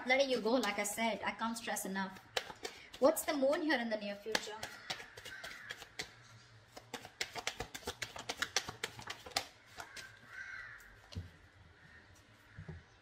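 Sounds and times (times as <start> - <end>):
cards being shuffled: 2.1 - 10.2.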